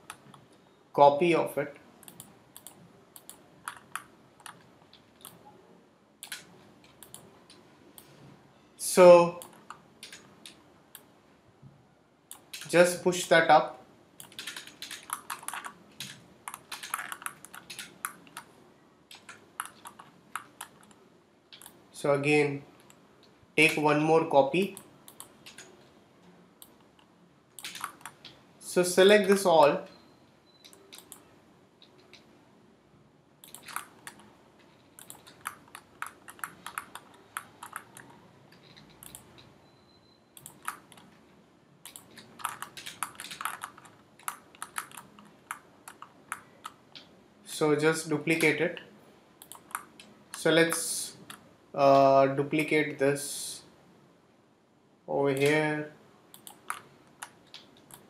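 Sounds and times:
computer keys clicking: 0:00.0 - 0:00.6, 0:02.0 - 0:05.5, 0:06.2 - 0:08.1, 0:09.3 - 0:11.1, 0:12.3 - 0:12.8, 0:14.2 - 0:18.5, 0:19.1 - 0:21.8, 0:24.6 - 0:25.9, 0:26.6 - 0:28.4, 0:30.6 - 0:32.3, 0:33.4 - 0:39.6, 0:40.4 - 0:41.2, 0:41.8 - 0:47.1, 0:49.4 - 0:51.4, 0:55.4 - 0:55.7, 0:56.3 - 0:58.0.

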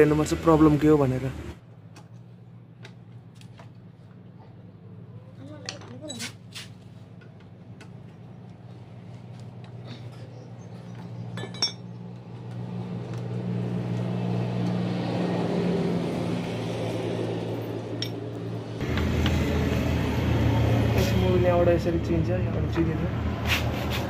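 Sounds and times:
low engine hum: 0:00.0 - 0:24.0
sharp metallic clink: 0:11.4 - 0:11.8.

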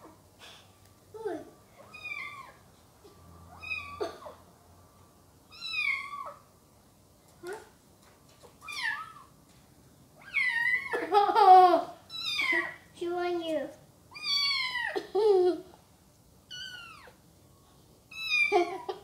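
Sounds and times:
kitten meowing: 0:01.8 - 0:02.6, 0:03.5 - 0:04.0, 0:05.5 - 0:06.4, 0:12.1 - 0:12.8, 0:14.1 - 0:15.0, 0:16.5 - 0:17.2.

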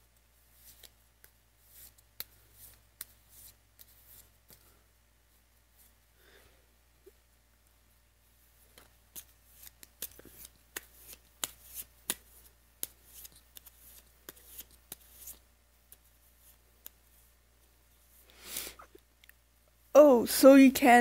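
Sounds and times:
cards being shuffled: 0:00.5 - 0:04.7, 0:08.6 - 0:17.3.

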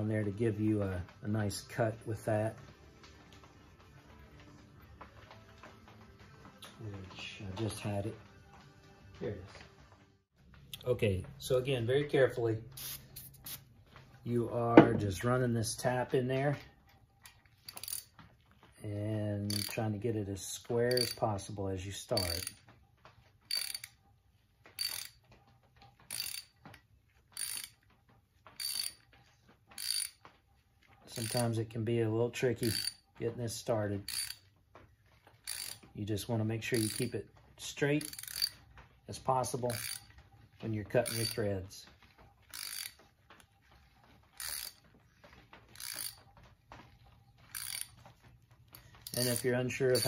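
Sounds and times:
ratchet clicking: 0:17.2 - 0:18.1, 0:19.5 - 0:19.8, 0:20.9 - 0:21.2, 0:22.2 - 0:22.6, 0:23.5 - 0:24.0, 0:24.7 - 0:25.2, 0:26.1 - 0:26.6, 0:27.3 - 0:27.8, 0:28.6 - 0:29.1, 0:29.7 - 0:30.3, 0:31.1 - 0:31.6, 0:32.6 - 0:33.0, 0:34.0 - 0:34.5, 0:35.4 - 0:35.9, 0:36.7 - 0:37.1, 0:38.0 - 0:38.6, 0:39.6 - 0:40.1, 0:41.0 - 0:41.4, 0:42.4 - 0:43.0, 0:44.3 - 0:44.8, 0:45.7 - 0:46.2, 0:47.5 - 0:48.0, 0:49.0 - 0:50.0.

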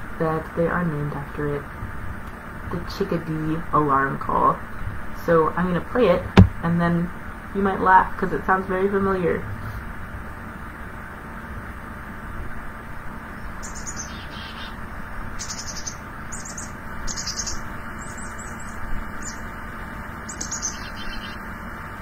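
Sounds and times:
chickadee alarm call: 0:13.6 - 0:19.6, 0:20.2 - 0:21.5.

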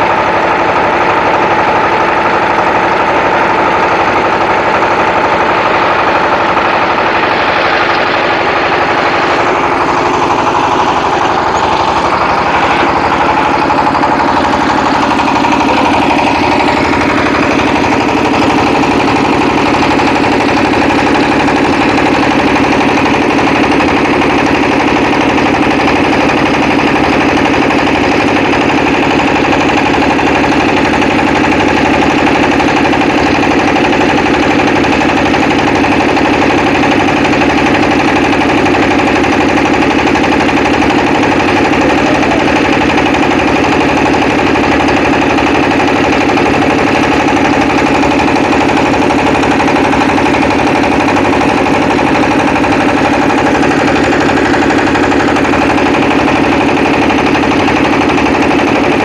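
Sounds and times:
small engine running with fast pulse: 0:00.0 - 0:59.0.

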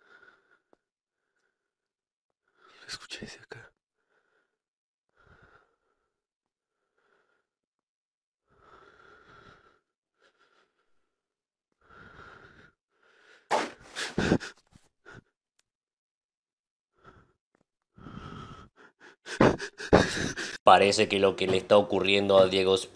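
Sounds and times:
person breathing hard: 0:00.0 - 0:01.7, 0:04.0 - 0:07.5, 0:08.5 - 0:11.1, 0:11.8 - 0:15.3, 0:17.0 - 0:17.4, 0:18.0 - 0:20.7.

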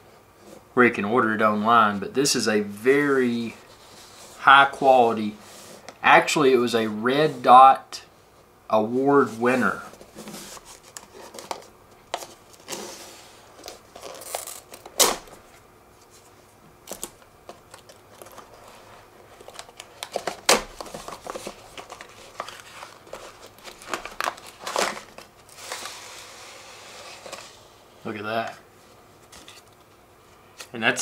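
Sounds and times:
cardboard box rustling and scraping: 0:09.4 - 0:11.6, 0:20.8 - 0:27.8
tape being peeled: 0:10.2 - 0:15.4, 0:16.8 - 0:27.6
card tray sliding out of sleeve: 0:24.6 - 0:27.7.

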